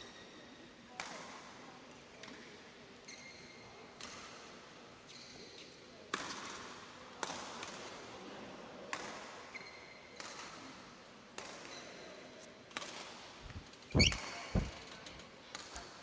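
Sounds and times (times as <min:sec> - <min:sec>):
shoe squeaks on court: 0:13.5 - 0:14.9.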